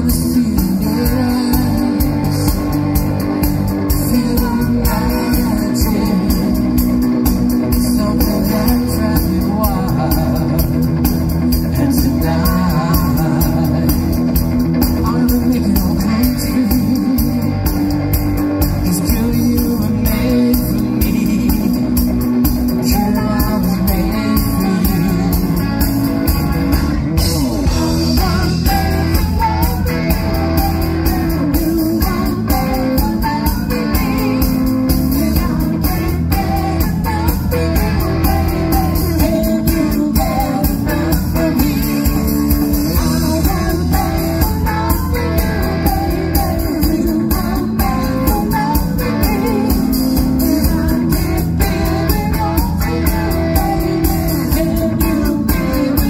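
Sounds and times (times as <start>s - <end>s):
drum kit: 0.0s - 56.0s
electric guitar: 0.0s - 56.0s
person singing: 0.0s - 56.0s.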